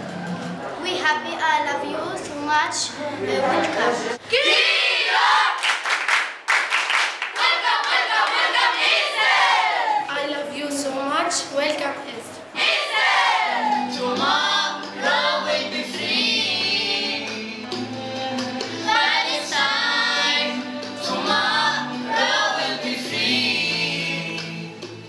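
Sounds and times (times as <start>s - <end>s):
girls singing in chorus: 7.4s - 10.1s, 12.5s - 17.4s, 18.8s - 24.6s.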